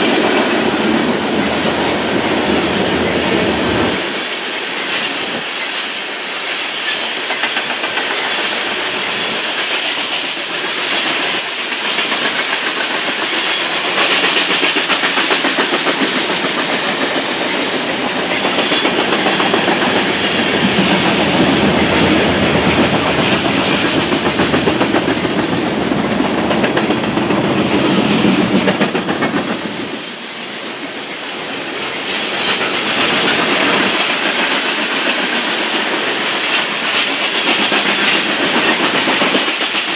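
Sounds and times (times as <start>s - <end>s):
train wheels clattering on rails: 0.0s - 39.9s.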